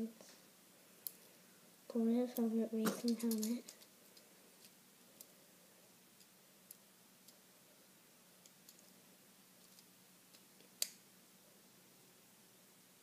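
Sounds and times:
plastic pieces clicking: 3.0s - 3.9s.

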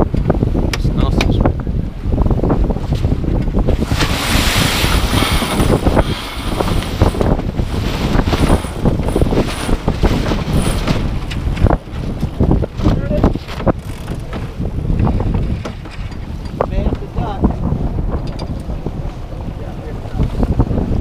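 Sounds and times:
sail flapping and rustling: 0.0s - 21.0s
wind rushing over microphone: 0.0s - 21.0s.

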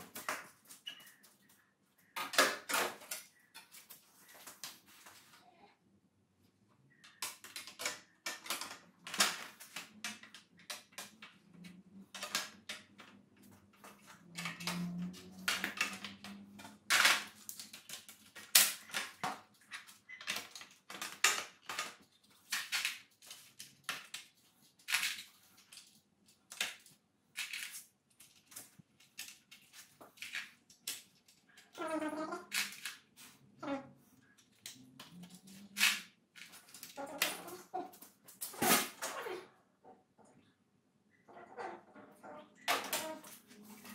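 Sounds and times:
hand tools and parts clicking: 32.5s - 33.3s.

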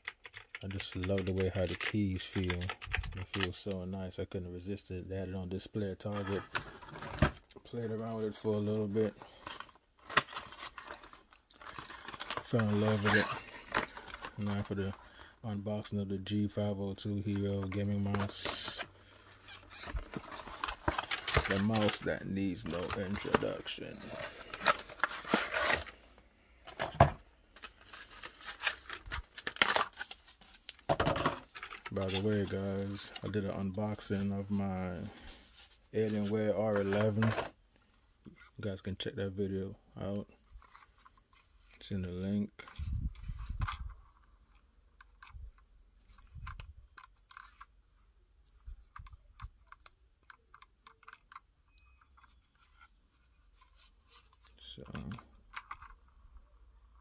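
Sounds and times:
cardboard and plastic rustling: 0.4s - 3.7s, 6.0s - 37.6s.

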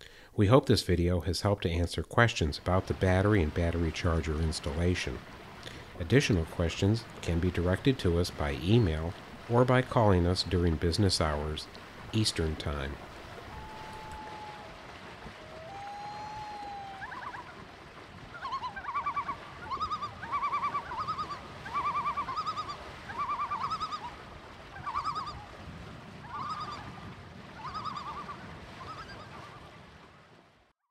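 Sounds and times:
low background hiss: 0.1s - 14.3s
bird calling stuttering notes: 24.8s - 25.4s.

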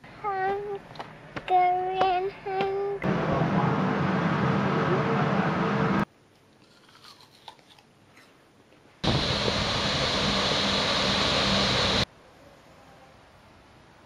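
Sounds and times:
child biting into an apple: 6.6s - 8.4s.

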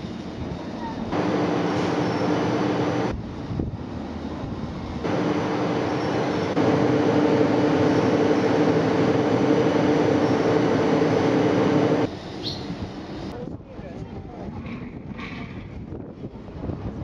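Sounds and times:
cable tramcar droning on track: 0.0s - 13.4s.

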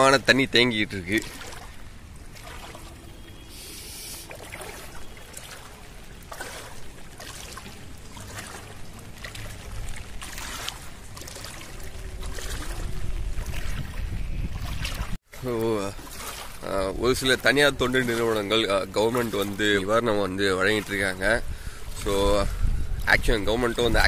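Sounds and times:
floodwater sloshing from wading: 0.0s - 24.0s
wind rumble on microphone: 7.8s - 15.2s, 20.7s - 24.0s.

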